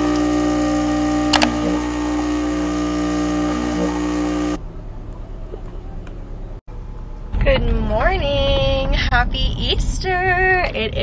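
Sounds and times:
espresso machine pump humming: 0:00.0 - 0:04.6.

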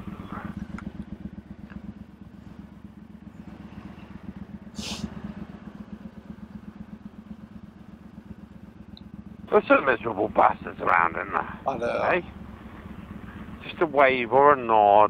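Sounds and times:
motorcycle engine idling: 0:00.0 - 0:15.0
short hiss: 0:04.8 - 0:05.1.

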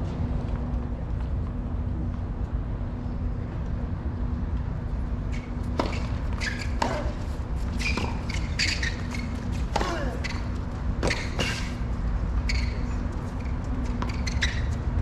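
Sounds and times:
outdoor background noise: 0:00.0 - 0:15.0
steady low hum: 0:00.0 - 0:15.0
tennis ball bouncing: 0:05.6 - 0:11.8
racket hitting tennis ball: 0:05.7 - 0:10.4, 0:11.0 - 0:11.8.

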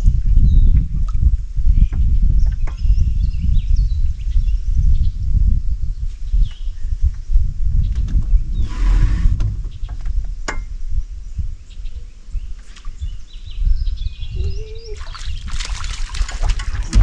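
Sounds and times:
birds chirping: 0:07.8 - 0:10.5, 0:11.2 - 0:17.0
fish splashing in water: 0:15.0 - 0:17.0.

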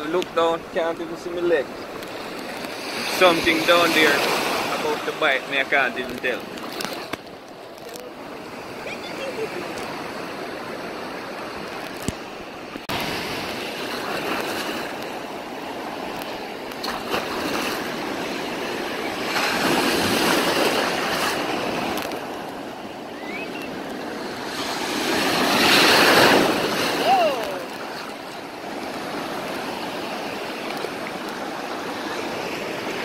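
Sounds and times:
ocean waves breaking: 0:00.0 - 0:33.0.

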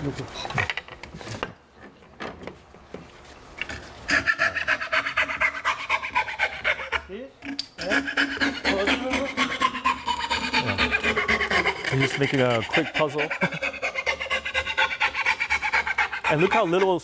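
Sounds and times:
hand saw rasping through wood: 0:07.8 - 0:17.0.

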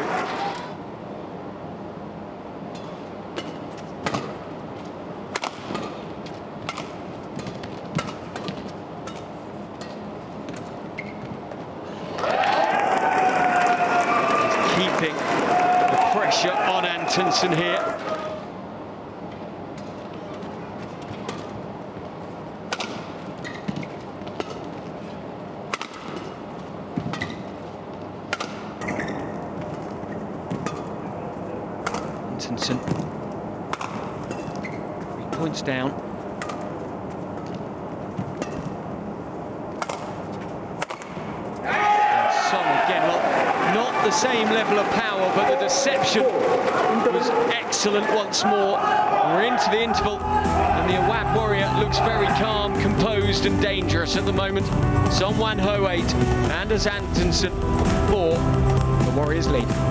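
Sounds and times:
crowd noise: 0:00.0 - 0:01.0, 0:11.8 - 0:23.3, 0:39.6 - 0:59.9
rackets striking shuttlecock: 0:02.7 - 0:04.4, 0:05.3 - 0:10.7, 0:22.7 - 0:24.8, 0:25.7 - 0:27.4, 0:28.3 - 0:29.9, 0:31.8 - 0:32.2, 0:33.7 - 0:35.5, 0:36.4 - 0:37.6, 0:38.2 - 0:38.9, 0:39.7 - 0:41.5
shoes squeaking on court: 0:05.6 - 0:11.7, 0:23.0 - 0:25.2, 0:26.0 - 0:31.1, 0:32.8 - 0:35.4, 0:36.2 - 0:41.6
crowd murmur: 0:42.2 - 0:55.1.

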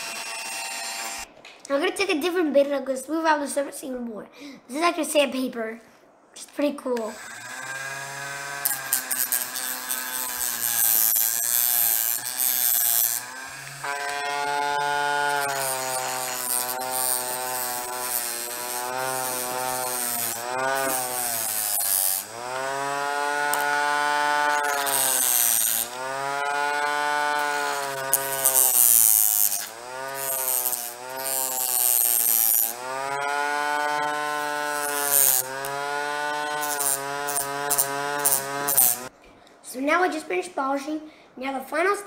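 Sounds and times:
rotary tool motor whining: 0:00.0 - 0:01.3, 0:07.0 - 0:39.1
polishing bit rubbing on metal: 0:08.6 - 0:39.1.

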